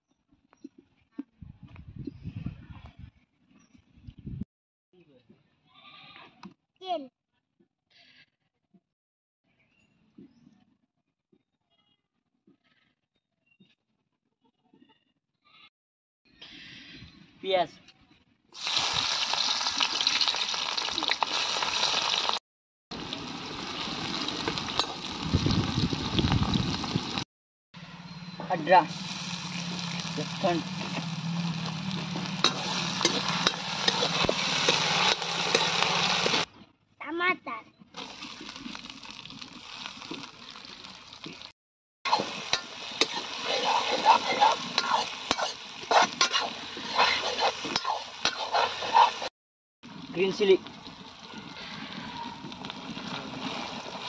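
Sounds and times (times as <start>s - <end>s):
onions sizzling in hot oil: 18.6s - 22.4s, 23.0s - 27.2s, 28.9s - 36.5s, 38.0s - 41.5s, 42.1s - 49.3s, 49.9s - 54.0s
ladle scraping pan: 31.7s - 36.4s, 42.1s - 49.3s.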